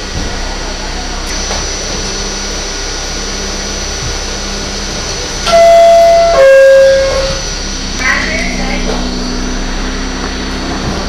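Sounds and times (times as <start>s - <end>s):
subway car hum: 0.0s - 11.0s
two-tone door chime: 5.5s - 8.8s.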